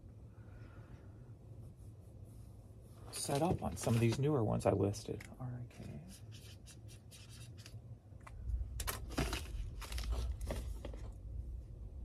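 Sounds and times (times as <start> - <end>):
rustling and scraping: 1.6 - 7.8, 8.8 - 11.3.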